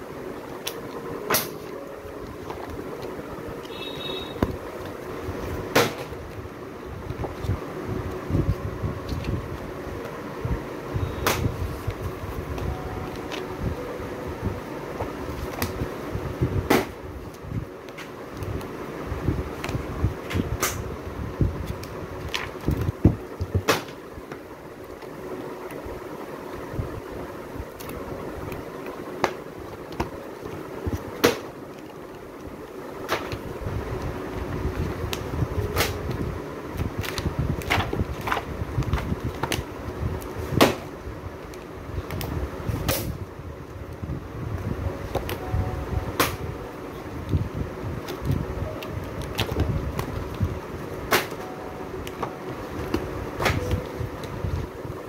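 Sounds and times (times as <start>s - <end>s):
steady low hum: 0.0s - 55.0s
book pages flipping: 0.4s - 10.2s, 11.3s - 13.6s, 14.9s - 15.9s, 21.5s - 25.8s, 27.7s - 40.8s, 45.0s - 45.5s, 46.2s - 54.6s.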